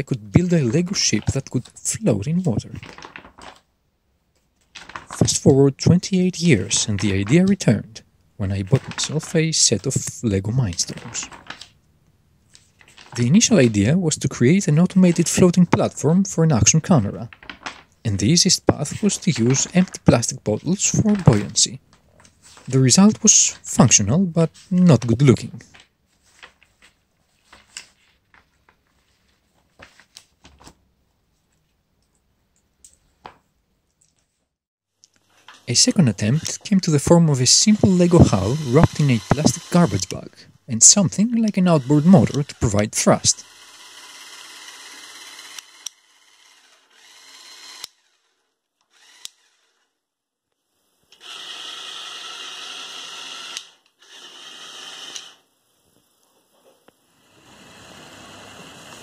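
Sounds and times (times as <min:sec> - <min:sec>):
paper booklet rustling: 0:00.1 - 0:03.6, 0:04.4 - 0:11.8, 0:12.4 - 0:31.8
small electric motor whirring: 0:37.5 - 0:40.3, 0:40.9 - 0:50.0, 0:51.1 - 0:55.4, 0:57.0 - 0:59.0.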